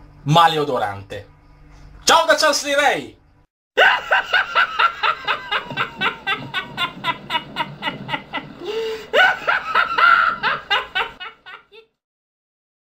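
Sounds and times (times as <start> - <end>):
person laughing hard: 3.8 - 11.9
drawn-in breath: 8.6 - 9.1.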